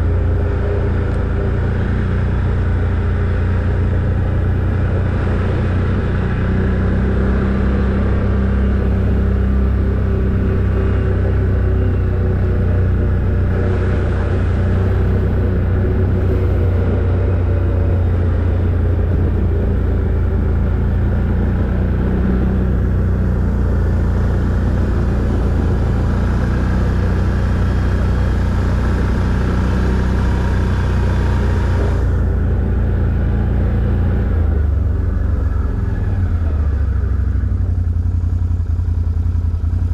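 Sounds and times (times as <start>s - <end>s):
atv engine running: 0.0s - 39.9s.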